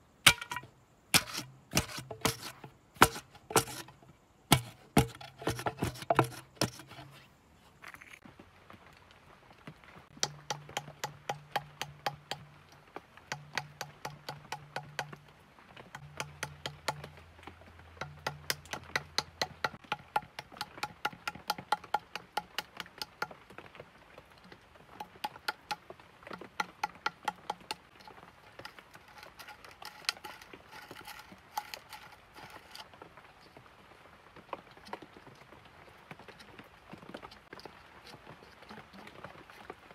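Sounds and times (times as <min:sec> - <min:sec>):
tool tapping bamboo tube: 0:00.3 - 0:07.2, 0:10.1 - 0:15.3, 0:15.9 - 0:23.5, 0:24.9 - 0:32.8.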